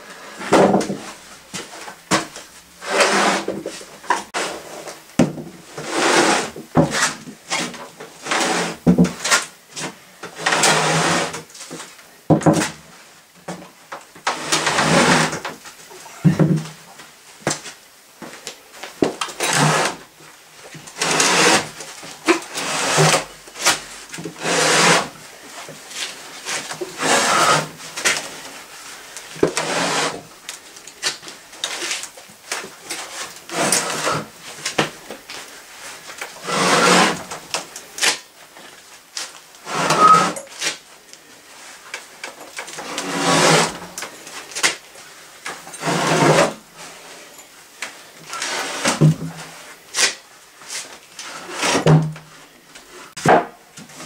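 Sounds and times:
metal motor scraping on plywood: 2.8 - 3.6, 19.4 - 20.0, 21.0 - 21.7, 22.5 - 23.7, 24.3 - 25.2, 26.6 - 27.8, 29.5 - 30.2, 33.1 - 34.3, 36.4 - 37.4, 39.6 - 40.4, 42.8 - 43.9, 45.8 - 47.3.

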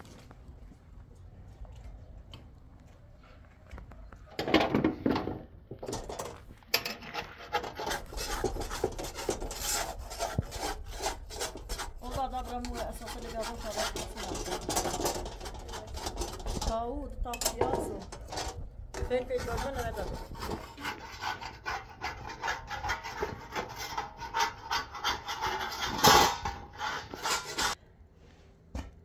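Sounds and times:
metal spatula scraping griddle: 5.9 - 16.8, 17.5 - 27.8.

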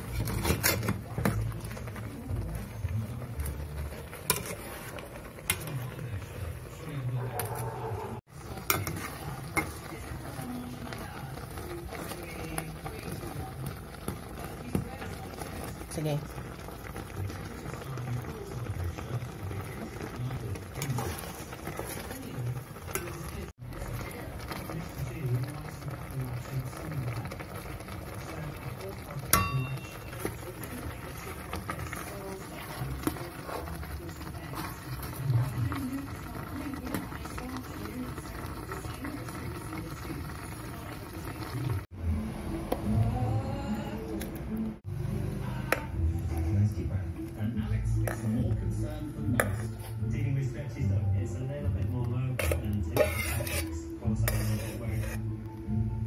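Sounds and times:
spatula stirring syrup: 0.0 - 7.6, 8.3 - 27.9, 28.8 - 39.6, 47.2 - 50.5, 51.8 - 55.3
spoon clinking on metal pot: 8.6 - 9.8, 29.3 - 30.7, 52.4 - 55.2.

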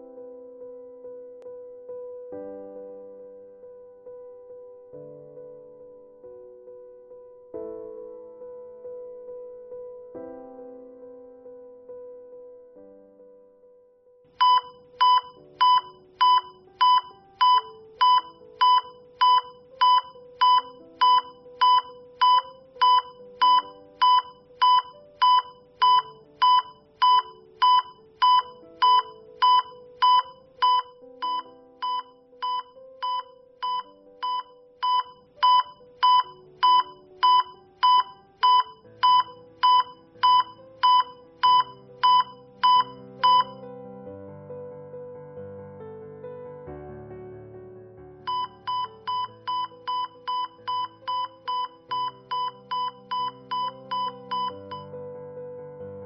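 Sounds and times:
soft piano music: 0.0 - 56.0
alarm beeping: 14.4 - 43.6, 48.3 - 54.9.

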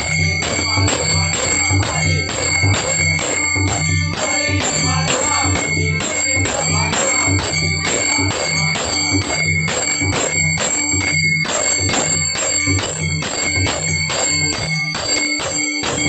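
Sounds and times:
group singing: 0.0 - 11.7
hand cymbals ringing: 0.0 - 16.0.

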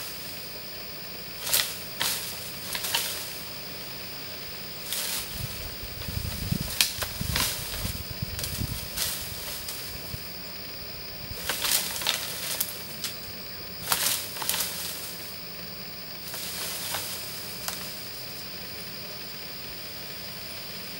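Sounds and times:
leaves rustling: 0.0 - 20.6
twigs snapping: 1.4 - 3.4, 4.8 - 10.1, 11.3 - 15.3, 16.2 - 18.0
deer antlers thrashing branches: 1.4 - 3.5, 4.8 - 10.3, 11.3 - 15.3, 16.2 - 18.0.

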